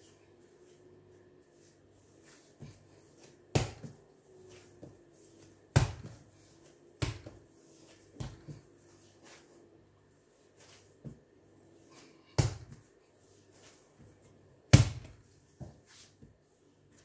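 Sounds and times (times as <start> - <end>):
dough thudding on counter: 3.5 - 4.0, 5.7 - 6.2, 7.0 - 7.4, 12.4 - 12.8, 14.7 - 15.7.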